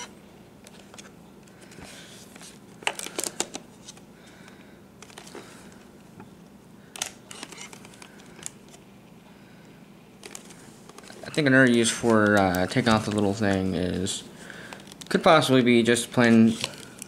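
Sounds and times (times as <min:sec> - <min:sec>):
faint steady hum: 0:00.0 - 0:17.0
camcorder clicks and plastic rattles: 0:07.0 - 0:08.5.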